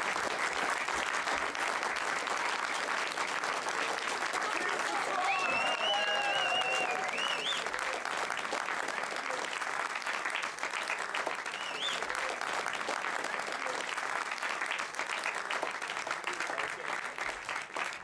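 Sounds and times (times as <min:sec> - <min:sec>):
audience applauding: 0:00.0 - 0:18.0
high whistles: 0:05.2 - 0:07.7, 0:11.5 - 0:12.0.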